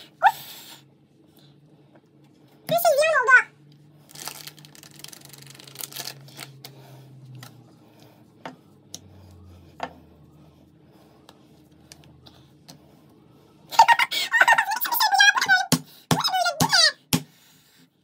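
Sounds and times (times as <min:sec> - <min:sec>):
soft rubbing of dough: 0:06.2 - 0:13.7.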